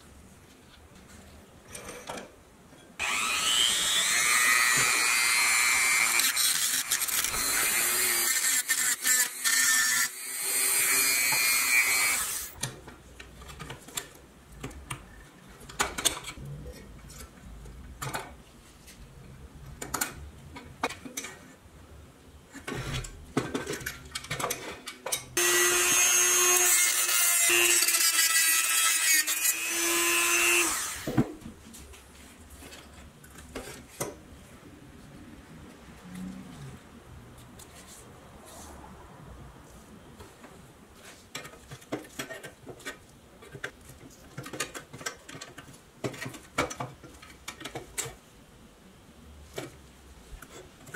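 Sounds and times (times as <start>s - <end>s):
rotary tool grinding metal: 3.0s - 12.6s, 25.4s - 31.1s.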